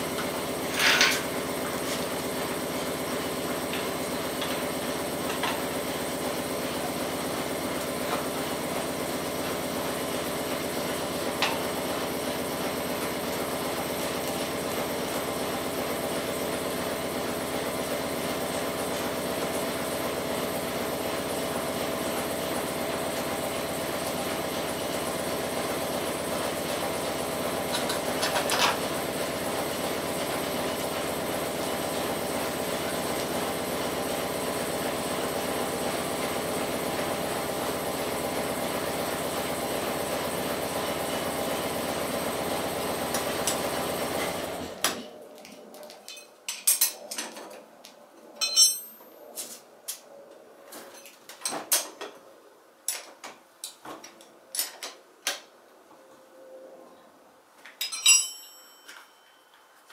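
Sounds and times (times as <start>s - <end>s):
hand tools clinking on metal: 48.4s - 49.0s, 57.7s - 59.4s.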